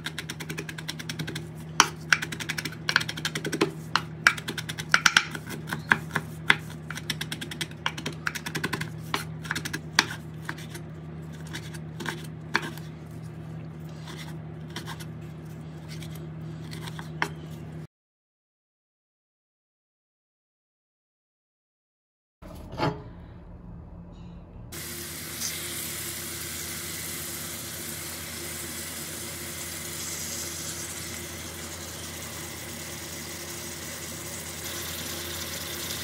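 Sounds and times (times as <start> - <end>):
knife chopping on cutting board: 0.0 - 10.7
low hum: 22.4 - 34.9.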